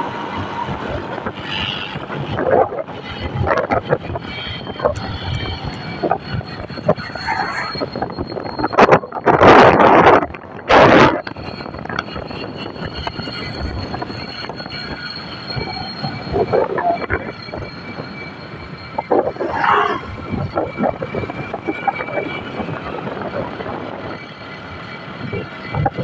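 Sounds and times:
vehicle moving on road: 0:00.0 - 0:26.0.

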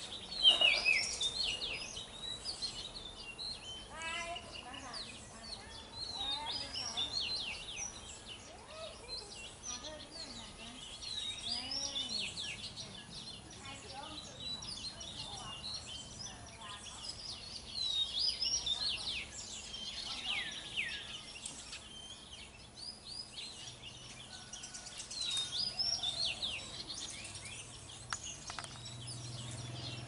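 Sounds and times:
bird singing whistled notes: 0:00.0 - 0:30.0
sharp clicks: 0:28.1 - 0:28.9.

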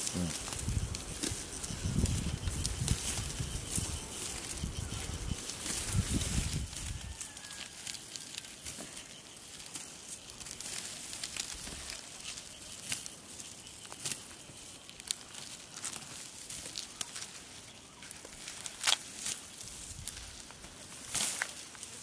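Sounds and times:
dry stalks crackling and rustling: 0:00.0 - 0:22.0
stalks snapping: 0:18.4 - 0:19.4.

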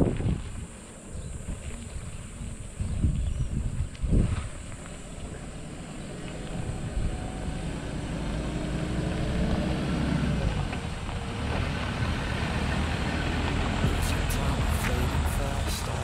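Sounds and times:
tyres on dirt road: 0:00.0 - 0:16.0
pickup truck engine: 0:05.2 - 0:16.0.

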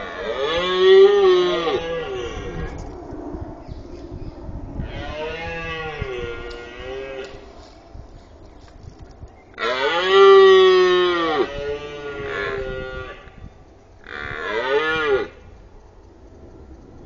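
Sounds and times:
deer stag roaring: 0:00.0 - 0:02.8, 0:04.8 - 0:07.5, 0:09.6 - 0:13.3.

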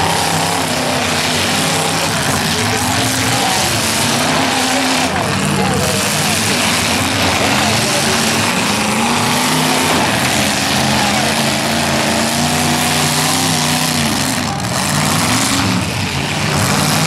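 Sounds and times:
car engines revving: 0:00.0 - 0:17.0.

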